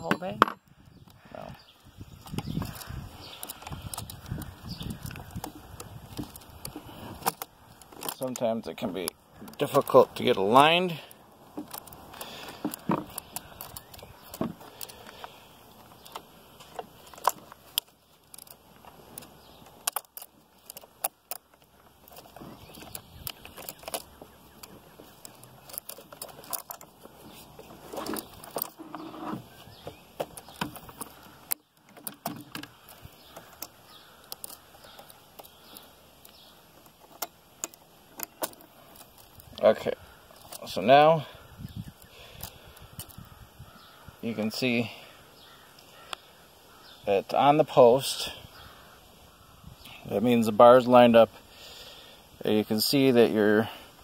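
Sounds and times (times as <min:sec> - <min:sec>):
small metal clicks: 0:02.2 - 0:40.9.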